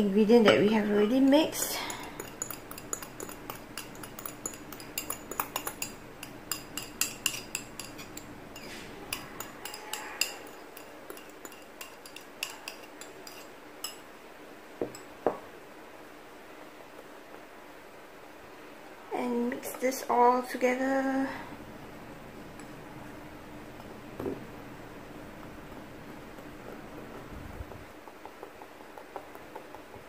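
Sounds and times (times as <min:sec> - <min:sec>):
bowls and whisk clinking: 0:00.4 - 0:14.0, 0:14.8 - 0:15.4.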